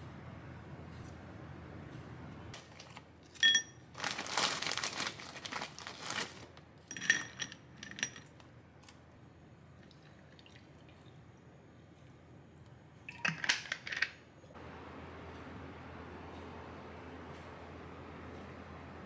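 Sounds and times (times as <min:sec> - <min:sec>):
plastic bag crinkling: 0:03.9 - 0:06.7.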